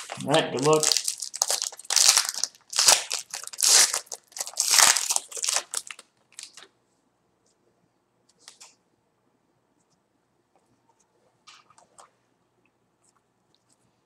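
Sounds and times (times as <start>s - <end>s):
card pack wrapper crinkling: 0.0s - 6.7s.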